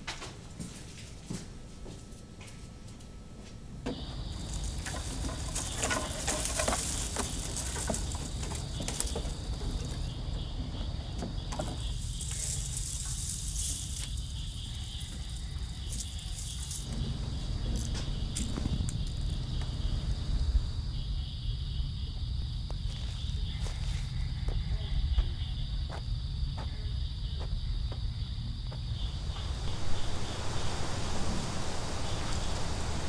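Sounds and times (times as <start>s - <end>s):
insect buzzing drone: 3.2s - 33.0s
footsteps on wooden boards: 3.9s - 14.2s
low rumble: 4.0s - 22.6s, 28.8s - 33.0s.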